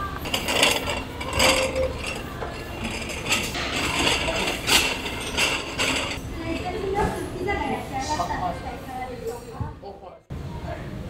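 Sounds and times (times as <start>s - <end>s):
dishes and utensils clinking: 0.0s - 7.2s.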